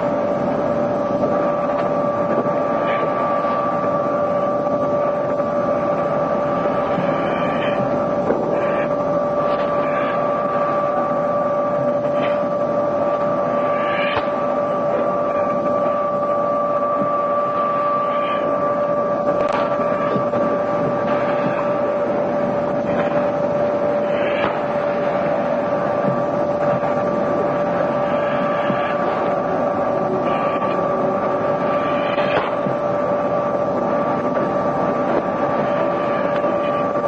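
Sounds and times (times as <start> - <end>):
steady hum with hiss: 0.0 - 37.0.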